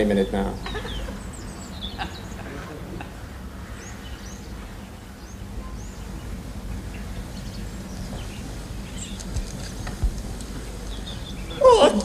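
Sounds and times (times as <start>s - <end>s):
small birds chirping: 0.0s - 12.0s
faint clicks: 9.0s - 11.0s.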